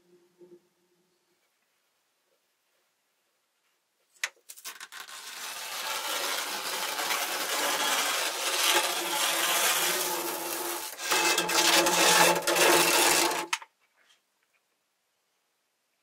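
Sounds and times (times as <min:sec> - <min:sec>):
rasping scrape on carbon fiber: 0:04.7 - 0:13.6.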